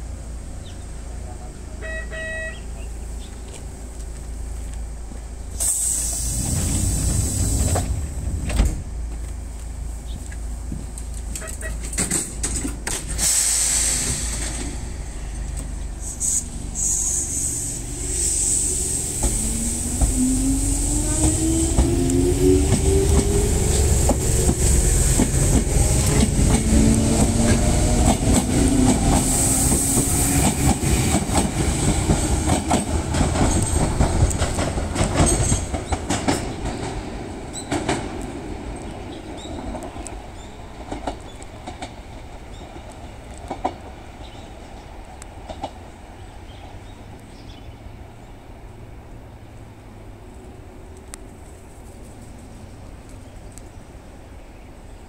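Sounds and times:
wheels clacking over rail joints: 6.4s - 15.9s, 19.2s - 44.0s.

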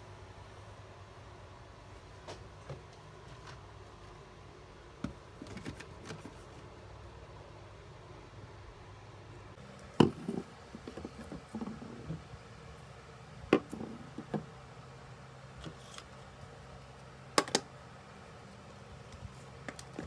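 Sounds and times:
objects knocking on a hard shelf: 10.0s - 12.2s.

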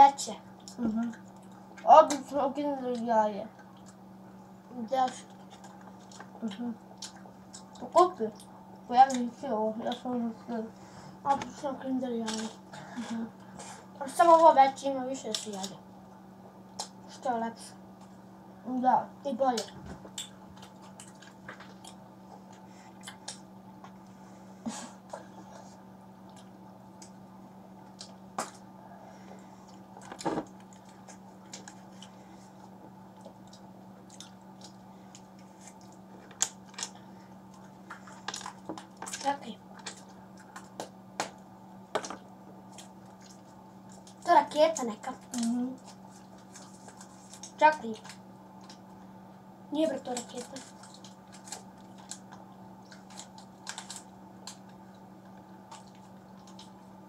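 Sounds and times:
steady low hum: 0.0s - 57.0s
quiet chewing: 0.5s - 2.2s, 2.9s - 4.1s, 5.0s - 9.2s, 19.6s - 41.0s, 42.2s - 44.3s, 45.1s - 49.1s, 50.1s - 56.9s
wrappers rustling and crackling: 45.2s - 48.2s, 50.1s - 54.8s.

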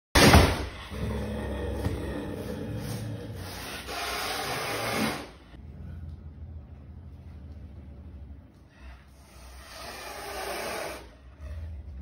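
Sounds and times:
wild cat hissing: 2.4s - 5.4s, 9.1s - 11.8s.

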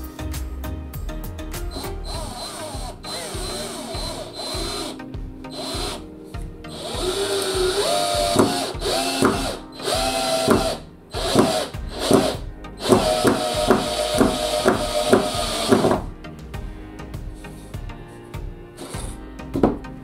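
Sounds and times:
cordless drill motor whining: 1.7s - 6.0s, 6.7s - 16.0s.

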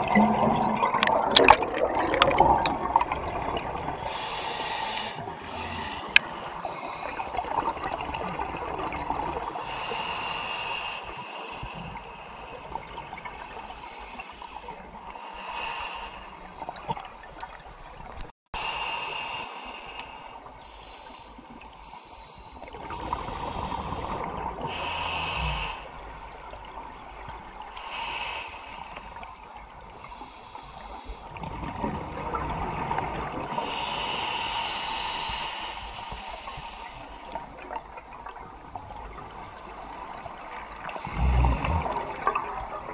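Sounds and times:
exhaled bubbles: 0.0s - 4.2s, 40.8s - 42.9s.

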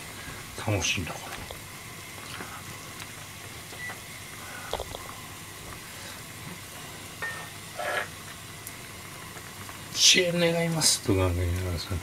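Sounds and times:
broth simmering: 0.0s - 12.0s
ladle scraping pan: 7.2s - 8.2s.

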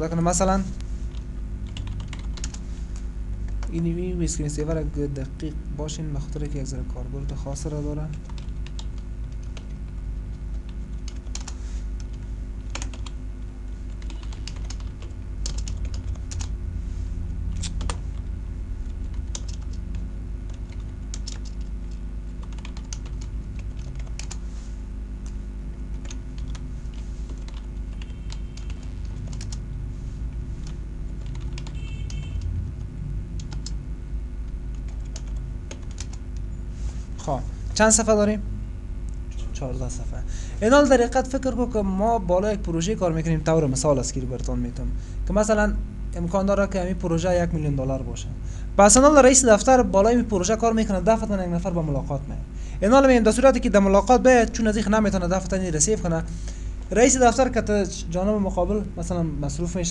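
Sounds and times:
low electrical hum: 0.0s - 59.9s
keyboard keys clicking: 1.6s - 2.6s, 8.2s - 9.8s, 10.6s - 13.2s, 13.9s - 16.5s, 17.6s - 18.3s, 19.1s - 24.4s, 26.0s - 26.6s, 27.3s - 27.7s, 30.6s - 32.5s, 33.4s - 33.8s, 34.7s - 36.2s.

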